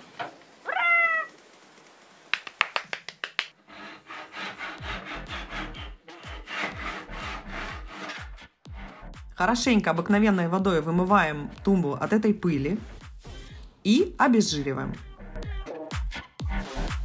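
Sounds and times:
hand saw rasping through wood: 3.6s - 8.5s.

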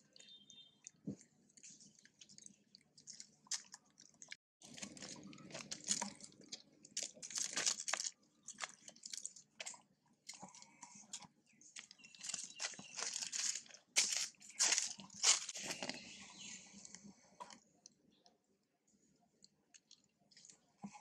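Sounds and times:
monkeys crunching and crackling: 0.0s - 17.6s.

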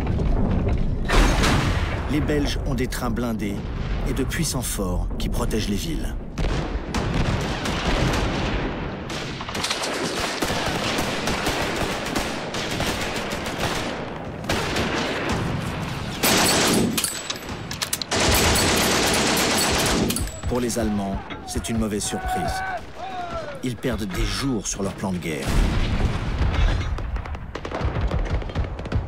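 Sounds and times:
rifle and machine-gun fire: 6.4s - 20.8s, 25.4s - 29.0s.

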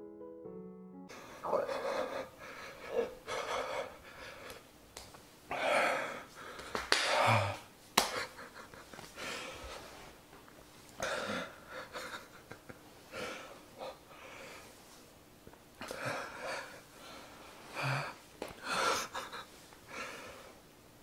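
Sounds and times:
man wheezing gasps: 5.5s - 7.7s.

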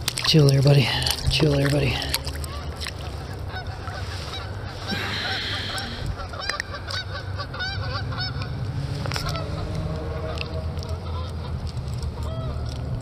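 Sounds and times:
steady low rumble: 0.0s - 13.0s
geese honking: 2.5s - 8.6s, 9.2s - 11.6s, 12.2s - 12.7s.

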